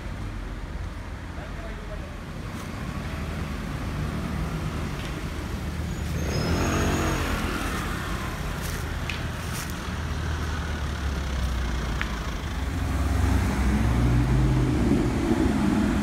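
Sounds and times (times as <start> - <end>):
car driving past: 5.8 - 8.4.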